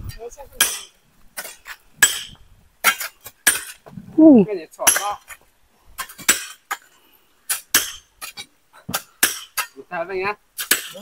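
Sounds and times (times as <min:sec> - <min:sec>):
hoes and hammer striking rock: 0:00.6 - 0:03.9, 0:04.8 - 0:05.4, 0:06.0 - 0:06.9, 0:07.5 - 0:09.8, 0:10.6 - 0:11.0
person calling out: 0:04.2 - 0:04.6.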